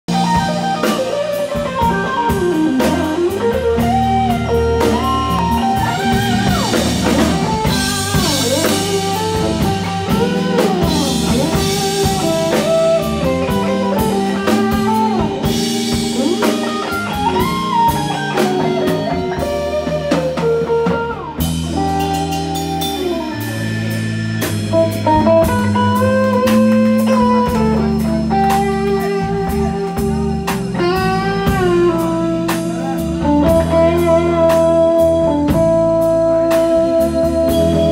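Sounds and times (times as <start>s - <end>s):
bending electric guitar notes: 0.1s - 37.9s
live band playing instrumental: 0.1s - 37.9s
steady drum beat: 0.1s - 37.9s.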